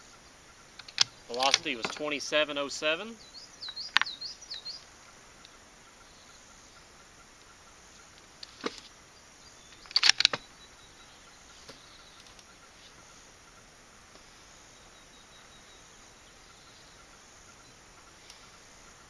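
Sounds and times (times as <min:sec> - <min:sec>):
faint insects chirping: 0:00.0 - 0:19.0.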